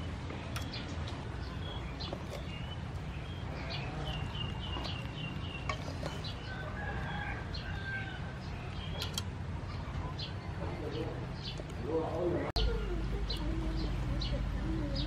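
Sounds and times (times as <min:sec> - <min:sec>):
rooster crowing: 0:06.2 - 0:08.4.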